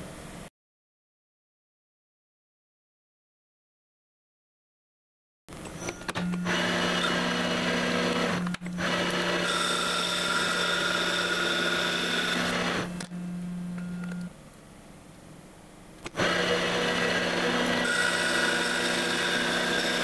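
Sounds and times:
lathe spindle hum: 0:06.4 - 0:13.7, 0:16.2 - 0:20.0
tool bit cutting metal: 0:08.9 - 0:12.9, 0:16.2 - 0:20.0.

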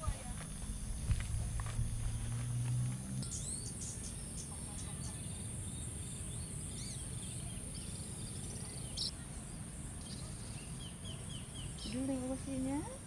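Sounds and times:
low rumble: 0:00.0 - 0:03.3
insects buzzing: 0:00.0 - 0:13.0
bird chirps: 0:03.2 - 0:12.4.

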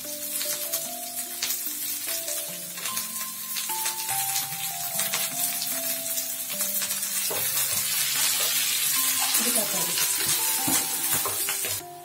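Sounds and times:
vegetables sizzling in hot oil: 0:00.0 - 0:12.0.

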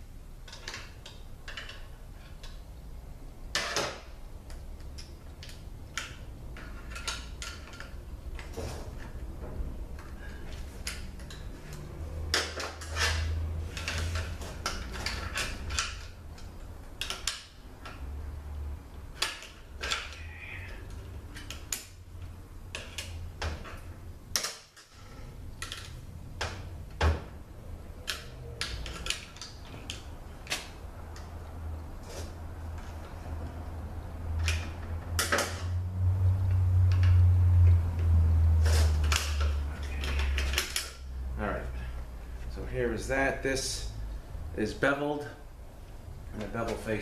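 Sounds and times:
metallic clicks and scrapes: 0:03.5 - 0:09.2, 0:09.9 - 0:18.2, 0:19.1 - 0:26.7, 0:27.9 - 0:31.4, 0:36.5 - 0:41.1.

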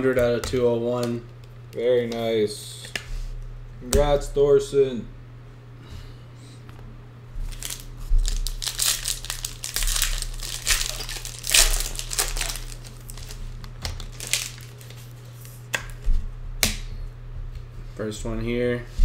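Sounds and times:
low steady hum: 0:00.0 - 0:19.0
foil wrapper crinkling and tearing: 0:07.4 - 0:15.6.

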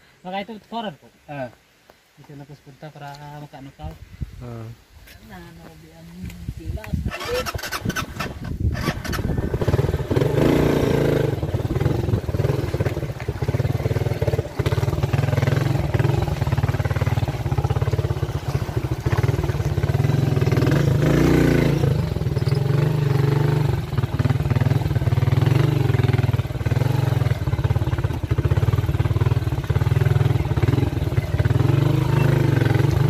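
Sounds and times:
small motorcycle engine running: 0:07.1 - 0:33.0.

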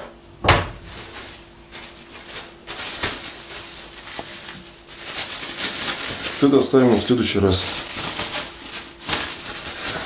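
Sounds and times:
thump: 0:00.4 - 0:00.8
plastic bag crinkling: 0:00.8 - 0:10.0.

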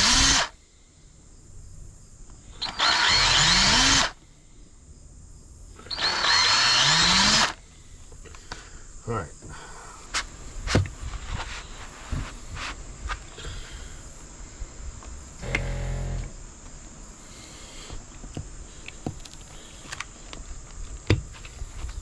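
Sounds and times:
low buzz: 0:02.5 - 0:04.3, 0:05.8 - 0:07.6, 0:15.3 - 0:16.6.

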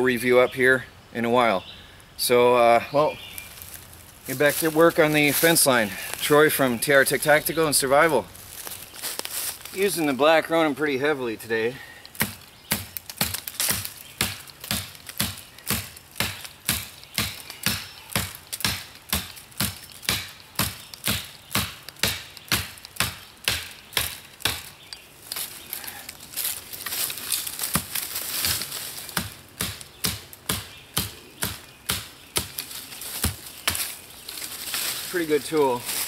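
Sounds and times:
tomahawk chopping sapling: 0:11.8 - 0:36.0.

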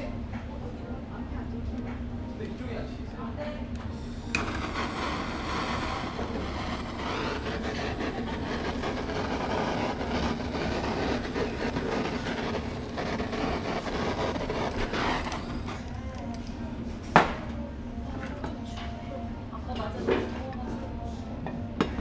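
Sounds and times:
food sizzling on griddle: 0:04.4 - 0:15.7.

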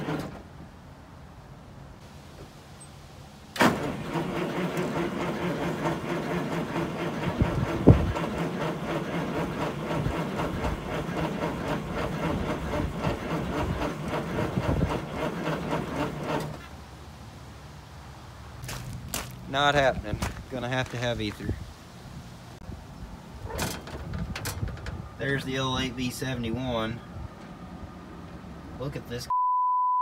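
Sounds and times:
starter cranking diesel engine: 0:00.0 - 0:00.4, 0:03.6 - 0:16.7.

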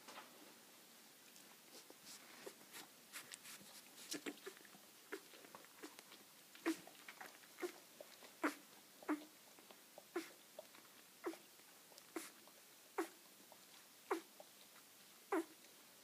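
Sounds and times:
puppy squeaking: 0:08.4 - 0:09.3, 0:14.1 - 0:14.3, 0:15.3 - 0:15.6.

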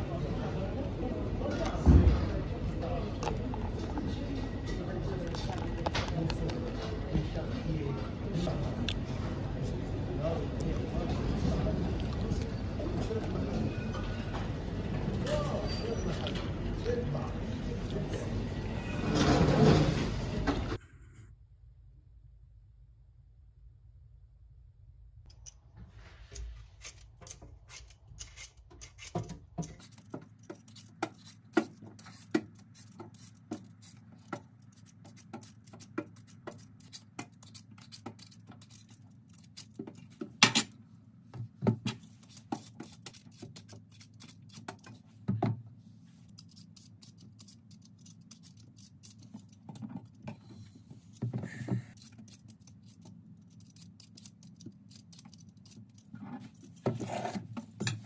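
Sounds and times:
peeler scraping vegetable skin: 0:26.3 - 0:40.2, 0:41.9 - 0:45.0, 0:46.2 - 0:50.2, 0:51.9 - 0:58.0.

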